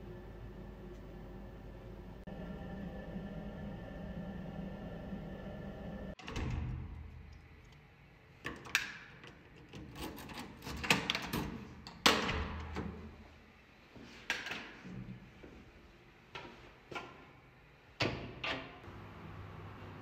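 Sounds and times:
steady hum: 0.0 - 6.2.

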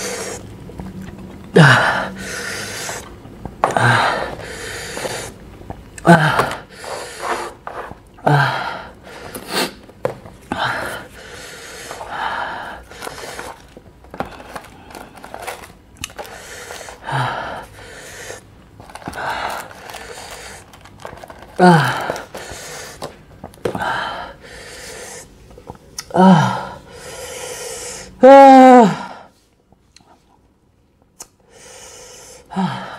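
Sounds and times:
man groaning: 1.5 - 2.2, 6.0 - 6.7, 21.6 - 22.2, 26.1 - 26.8, 28.2 - 29.3
man hissing breaths: 1.6 - 3.1, 3.8 - 5.4, 16.3 - 18.5, 23.8 - 25.4, 26.2 - 28.2, 31.4 - 32.9.

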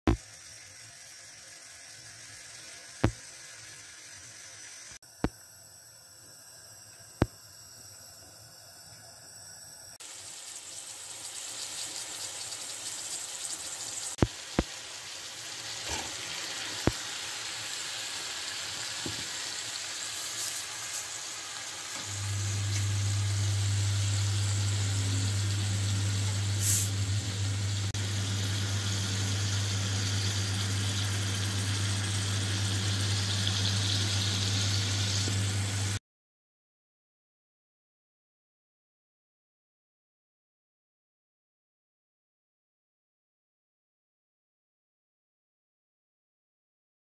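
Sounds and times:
vegetables sizzling in oil: 0.1 - 8.1, 9.9 - 36.0
steady low hum: 22.0 - 36.0.

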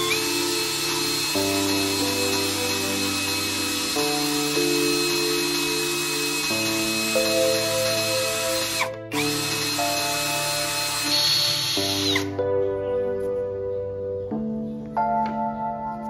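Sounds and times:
cordless drill boring into wood: 0.0 - 12.3
background music: 0.0 - 16.0.

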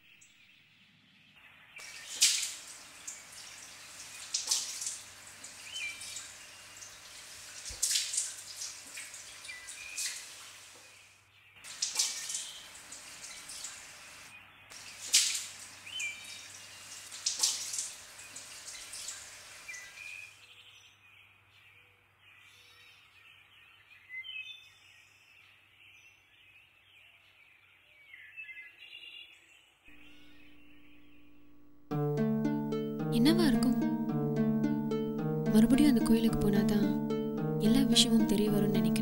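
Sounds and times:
water dripping: 1.8 - 10.8, 11.7 - 14.0, 16.5 - 19.6
faint high chirps: 29.9 - 35.5.

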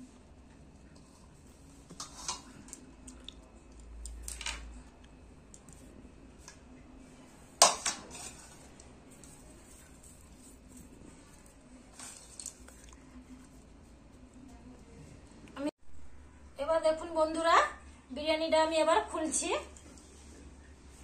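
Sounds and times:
utensil scraping pot: 0.9 - 2.8, 7.5 - 13.6
utensils clinking on metal pot: 7.6 - 8.7.

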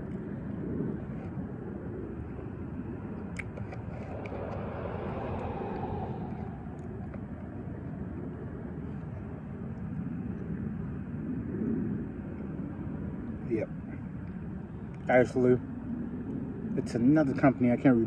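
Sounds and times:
distant traffic rumble: 0.0 - 18.0
vehicle passing: 3.4 - 8.1.

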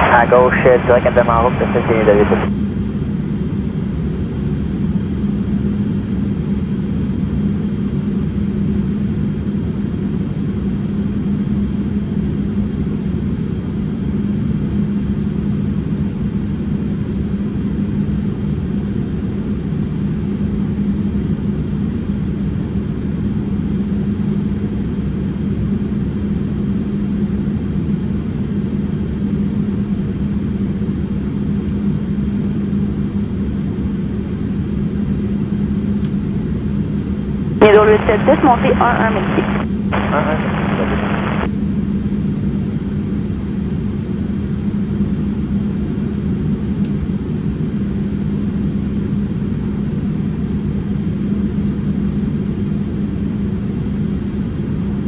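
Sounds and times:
airplane cabin engine rumble: 0.0 - 2.5, 37.6 - 41.5
constant low hum: 0.0 - 55.0.

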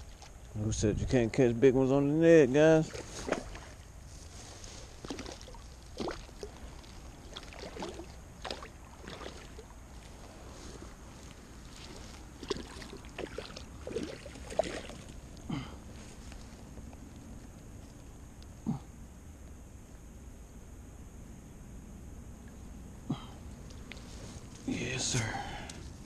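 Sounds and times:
low steady background: 0.0 - 26.0
dry grass and leaves rustling: 2.6 - 18.6, 23.5 - 26.0.

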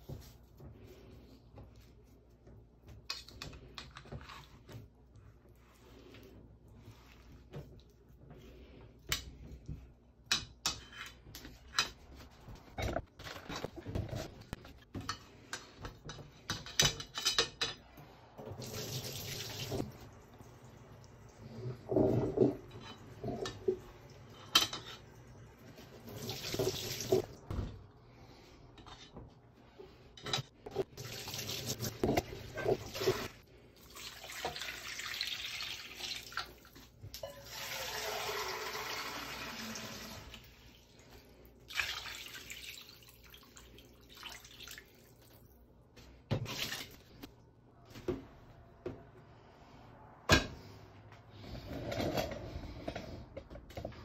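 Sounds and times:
kitchen tap running: 18.4 - 21.2, 25.9 - 27.3, 30.7 - 40.6.

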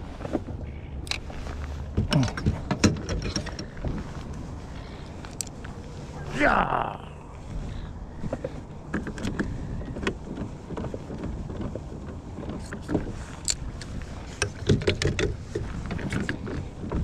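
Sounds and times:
fishing rod clicks and knocks: 1.0 - 1.3, 5.0 - 5.7, 12.5 - 16.7.

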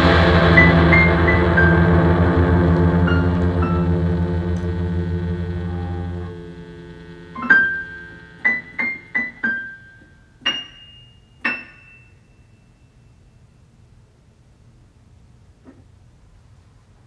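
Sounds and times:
held chord: 0.0 - 11.7
high keyboard notes: 0.0 - 12.2.

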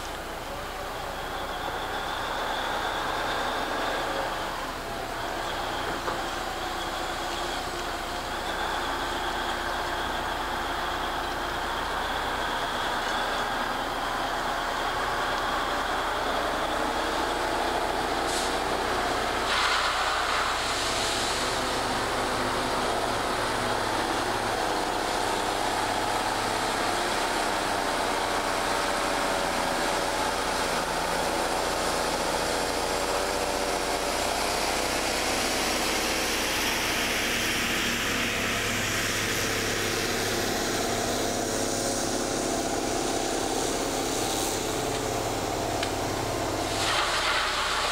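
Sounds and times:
material handler engine running: 0.0 - 47.9
hydraulic hiss: 18.2 - 22.1, 37.2 - 47.9.

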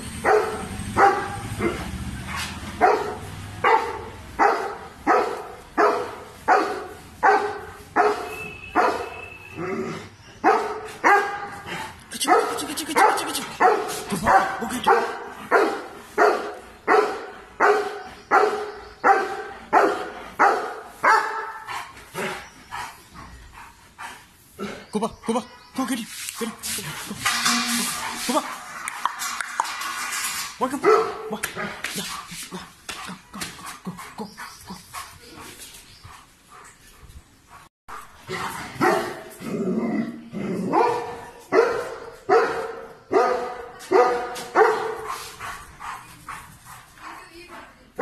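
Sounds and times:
dog barking: 0.2 - 9.2, 10.4 - 11.6, 12.2 - 21.7, 30.8 - 32.1, 38.8 - 39.4, 40.6 - 46.4.

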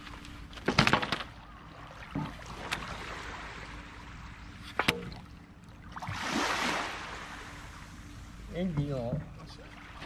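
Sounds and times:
water noise: 0.0 - 10.0
boat knocking: 8.6 - 9.6.

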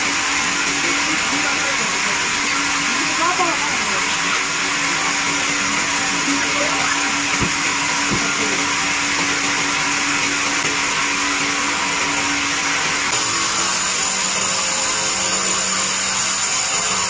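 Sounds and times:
band sawmill running: 0.0 - 17.0
dull knocks: 7.4 - 8.4.

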